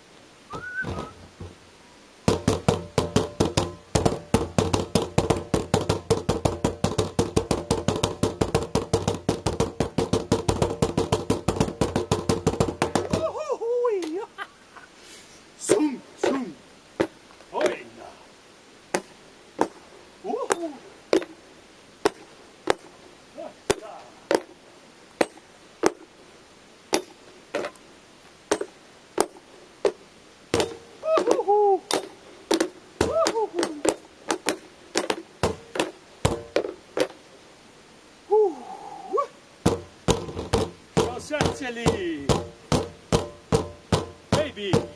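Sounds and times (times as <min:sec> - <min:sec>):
wooden sticks drumming on plastic bins: 0:00.6 - 0:01.6, 0:02.2 - 0:13.4, 0:15.6 - 0:17.8, 0:30.6 - 0:37.1, 0:39.6 - 0:44.9.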